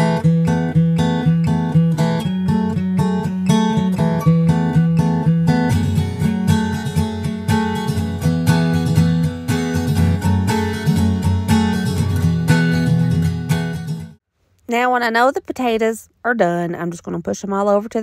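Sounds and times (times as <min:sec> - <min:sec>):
acoustic guitar strumming: 0:00.0 - 0:14.2.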